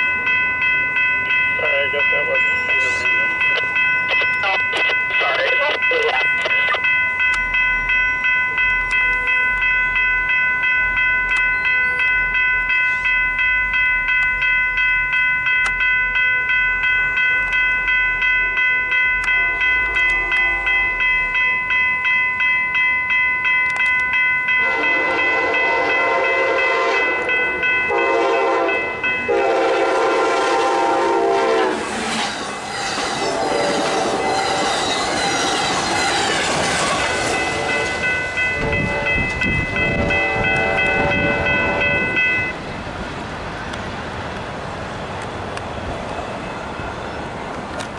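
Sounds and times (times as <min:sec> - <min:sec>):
railroad crossing bells ringing: 0:00.0 - 0:47.9
train horn blasts: 0:19.3 - 0:21.0, 0:24.6 - 0:32.3, 0:32.9 - 0:34.8, 0:37.2 - 0:42.2
train wheels clattering on rails: 0:31.7 - 0:44.5.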